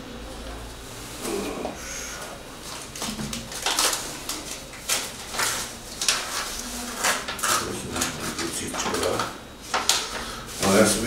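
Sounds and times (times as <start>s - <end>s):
paper rustling and crinkling: 2.6s - 11.0s.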